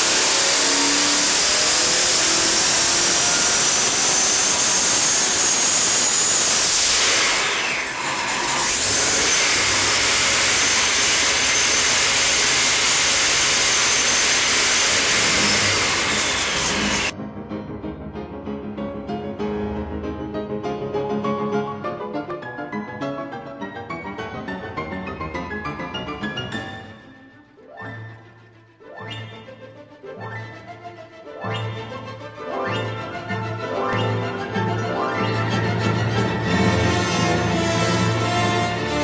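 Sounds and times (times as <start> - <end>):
engine running hard: 0.0 - 17.1, 35.7 - 39.0
supercharger whine: 0.0 - 17.1
piano music: 17.0 - 39.0.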